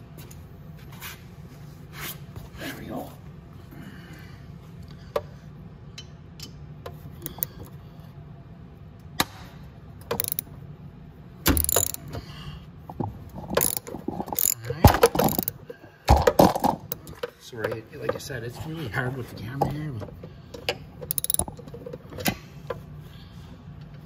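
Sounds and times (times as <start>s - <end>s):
socket ratchet clicking: 7.2s - 7.5s, 10.1s - 10.5s, 11.5s - 12.1s, 13.6s - 15.6s, 21.0s - 21.6s
tools knocking: 10.1s - 10.4s, 11.5s - 12.0s, 13.6s - 15.5s, 21.1s - 21.6s.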